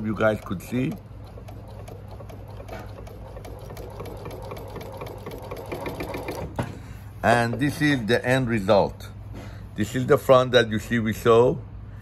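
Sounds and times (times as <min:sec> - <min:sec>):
sewing machine humming and ticking: 0:00.0 - 0:06.6.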